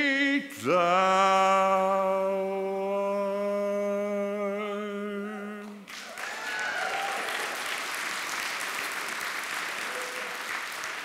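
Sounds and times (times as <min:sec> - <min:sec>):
man singing a long note: 0:00.0 - 0:05.8
congregation applauding: 0:05.8 - 0:11.0.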